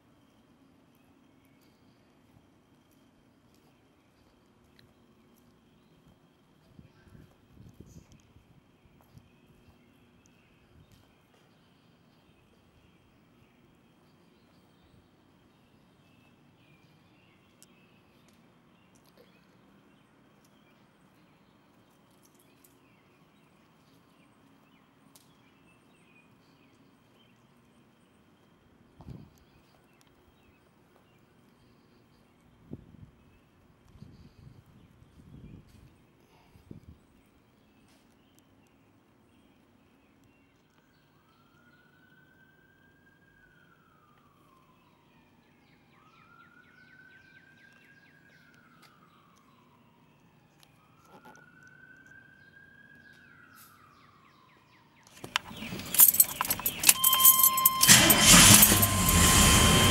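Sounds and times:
faint siren wailing: 41.0 - 59.9.

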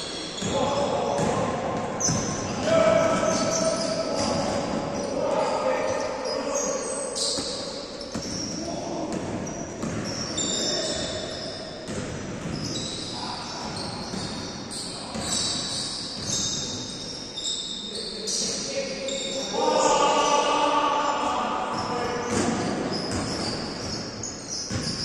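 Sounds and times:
sneaker squeaks: 0.0 - 19.9, 21.7 - 25.0
basketball bouncing on court: 0.4 - 4.8, 7.2 - 15.6, 16.2 - 16.8, 22.2 - 25.0.

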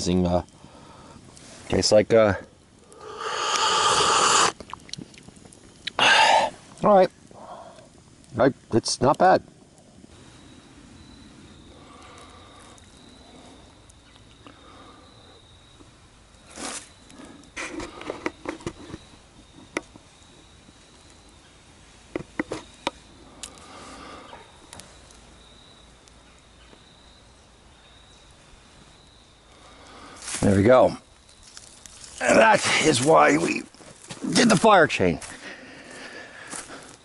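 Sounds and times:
high-pitched insect trill: 1.8 - 4.8, 10.1 - 21.6, 22.4 - 37.0
dry grass rustling and crackling: 29.6 - 37.0.

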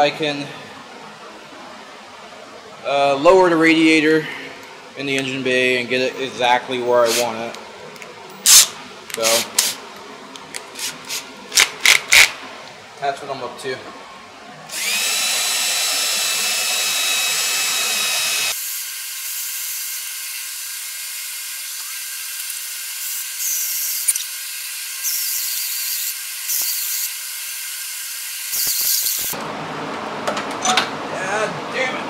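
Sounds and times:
drill whining into metal: 14.7 - 29.4.

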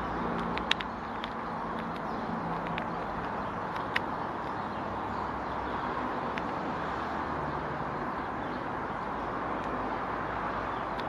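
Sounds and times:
outdoor rumble and hiss: 0.0 - 11.0
woodpecker bill tapping nut: 0.2 - 4.8.

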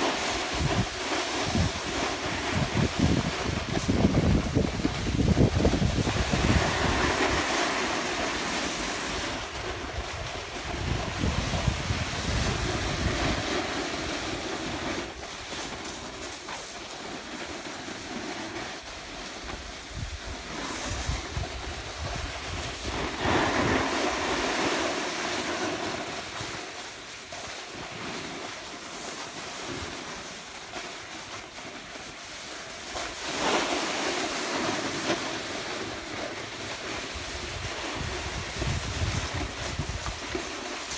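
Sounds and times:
wind buffeting microphone: 0.0 - 7.9, 8.8 - 15.2, 19.8 - 24.5, 37.1 - 40.9
snowboard scraping on snow: 0.0 - 40.9.

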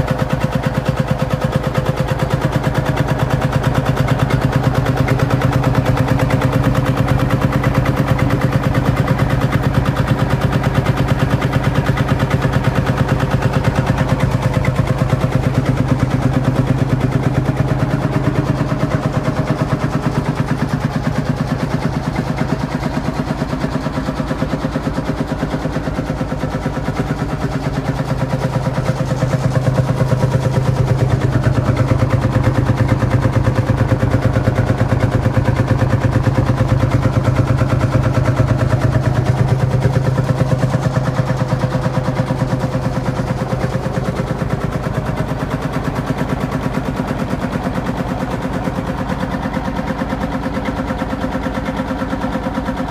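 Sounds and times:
diesel tractor engine running: 0.0 - 52.9.

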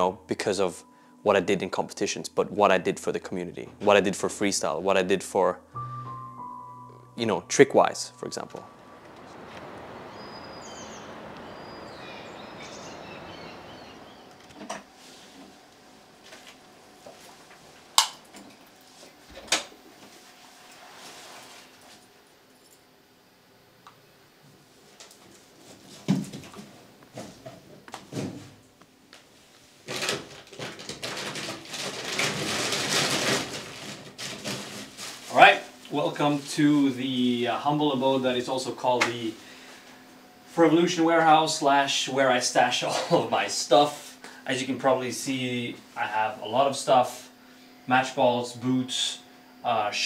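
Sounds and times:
outdoor background noise: 8.1 - 43.5
small birds chirping: 9.2 - 14.7
rummaging through bags and boxes: 29.8 - 35.6.

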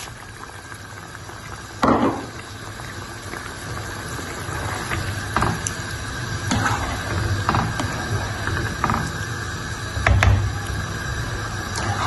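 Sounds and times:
stock simmering: 0.0 - 12.0.

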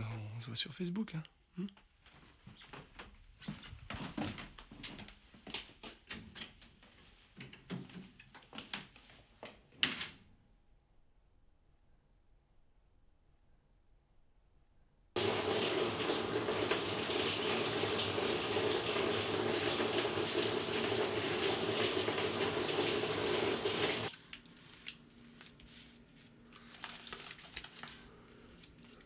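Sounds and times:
running water: 15.2 - 24.1.

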